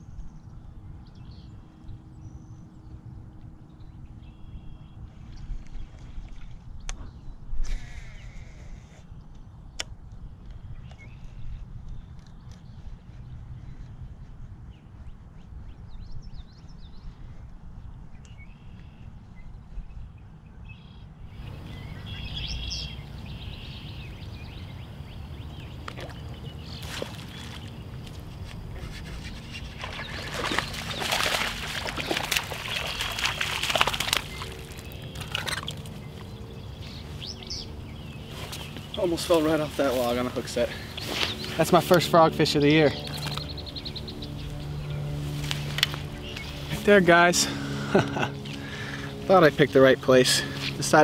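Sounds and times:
steady low rumble: 19.0s - 51.0s
birds chirping: 20.7s - 51.0s
water splashing: 25.7s - 36.4s.

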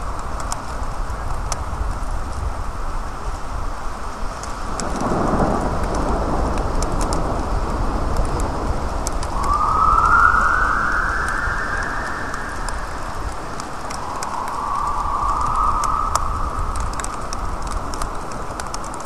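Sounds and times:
sharp water drip ticks: 0.0s - 2.5s, 4.2s - 19.0s
rain hiss: 0.0s - 19.0s
distant siren wail: 9.2s - 18.5s.

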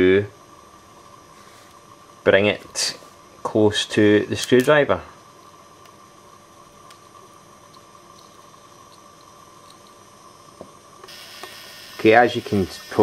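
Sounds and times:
ignition coil buzzing: 5.6s - 13.0s.

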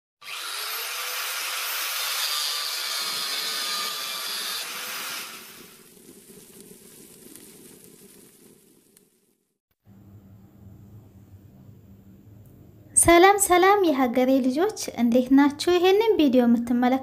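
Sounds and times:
angle grinder cutting metal: 0.2s - 5.8s.

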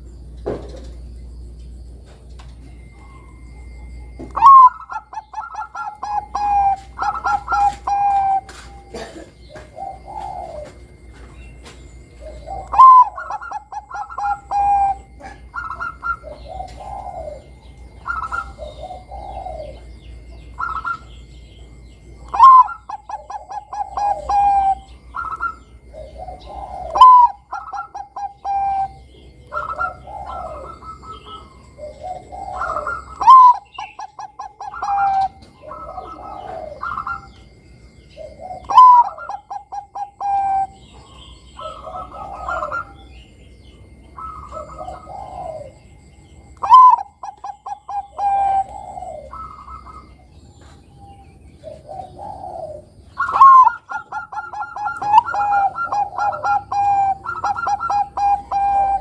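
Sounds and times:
dove cooing song: 0.0s - 59.0s.

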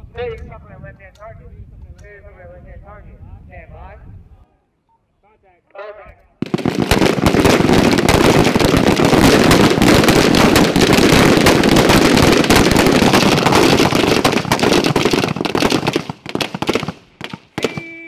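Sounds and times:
rifles firing: 6.4s - 18.0s.

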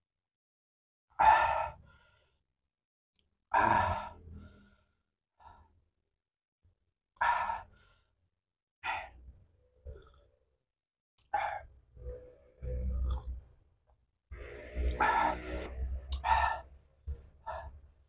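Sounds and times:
man panting exhalations: 15.0s - 18.0s.

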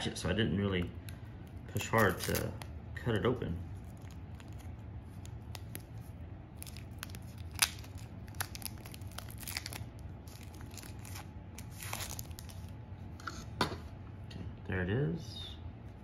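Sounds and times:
plastic wrapping crinkling: 1.7s - 2.7s, 3.7s - 12.7s.

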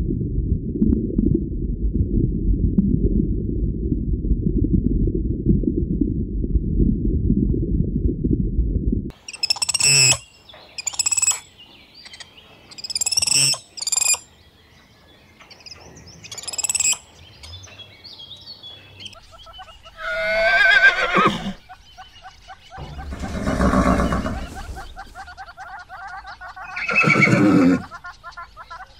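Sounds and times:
high-pitched chirping calls: 9.1s - 14.3s, 15.4s - 28.9s
horse whinnying: 20.0s - 21.6s, 23.1s - 24.8s, 26.8s - 27.9s.

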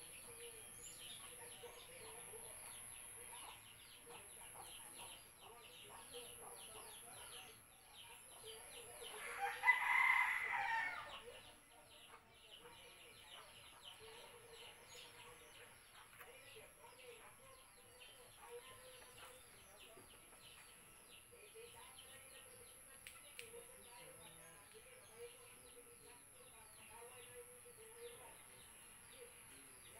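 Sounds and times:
small birds chirping: 0.0s - 29.9s
rooster crowing: 9.3s - 11.2s.

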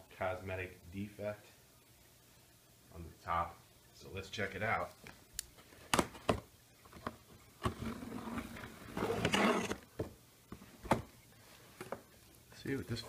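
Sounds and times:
cardboard scraping and rustling: 7.6s - 9.8s.

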